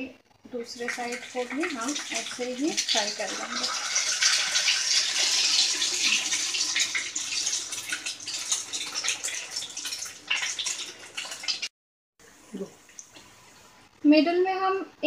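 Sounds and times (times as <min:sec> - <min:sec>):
oil sizzling in a pan: 0:00.6 - 0:11.7.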